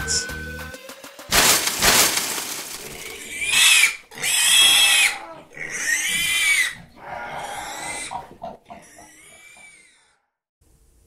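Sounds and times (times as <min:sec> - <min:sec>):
pig squealing: 0:02.8 - 0:10.3.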